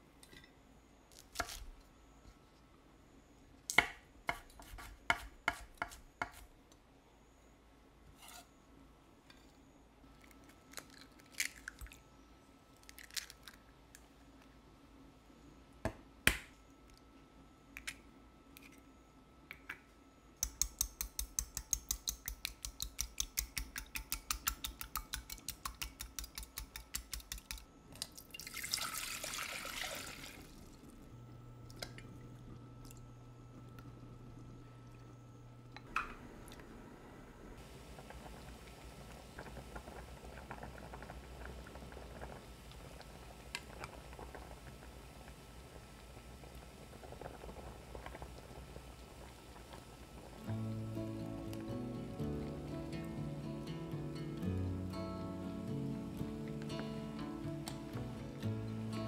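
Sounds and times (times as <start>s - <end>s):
knife chopping on cutting board: 3.8s - 6.4s.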